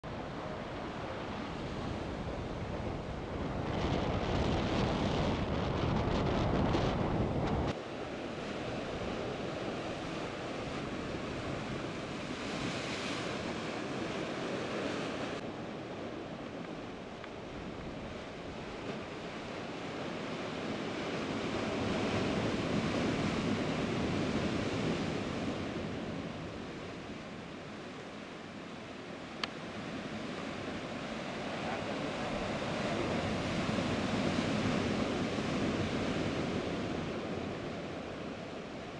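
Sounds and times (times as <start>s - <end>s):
wind on microphone: 0.1s - 27.4s.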